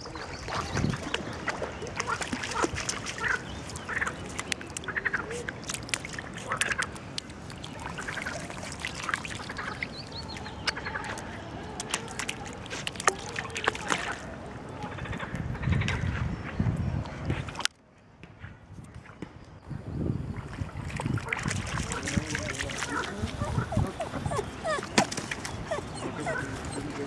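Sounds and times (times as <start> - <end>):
dog splashing in water: 0.4 - 14.3, 20.5 - 27.0.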